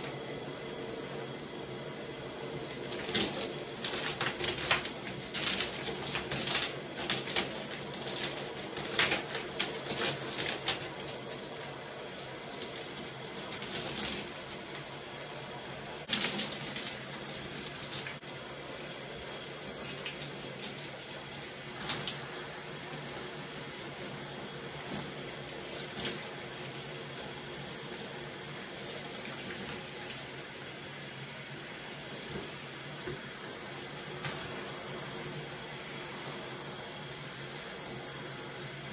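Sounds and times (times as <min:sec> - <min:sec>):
shower water running: 0:00.0 - 0:38.9.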